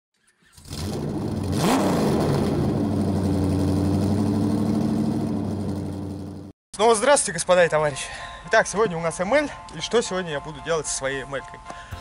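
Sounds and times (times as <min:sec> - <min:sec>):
vehicle engine starting and idling: 0:00.6 - 0:06.5.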